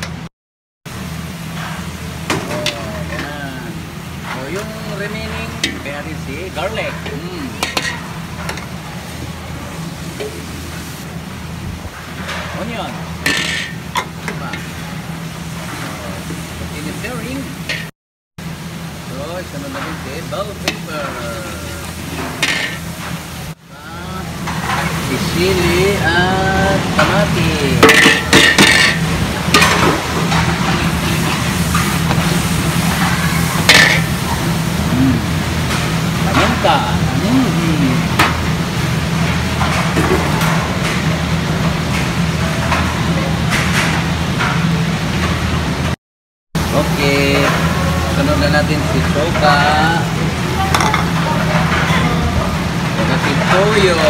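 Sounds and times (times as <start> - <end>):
steady low hum: 0.9 - 40.0
food sizzling in a pan: 24.2 - 44.4
spatula clanking on pan: 50.7 - 51.2.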